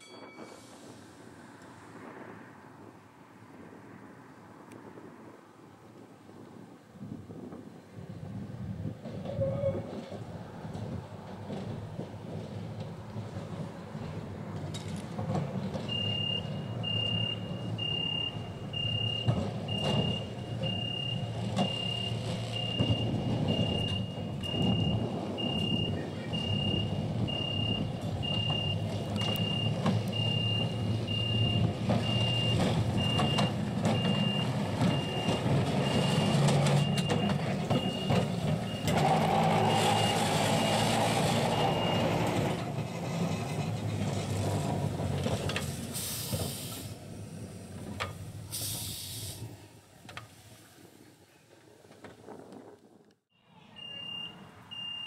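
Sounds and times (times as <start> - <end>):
tram rumbling on track: 0.0 - 55.0
high electronic beep: 15.9 - 38.1, 53.8 - 55.0
air hissing: 45.8 - 47.1, 48.5 - 49.6.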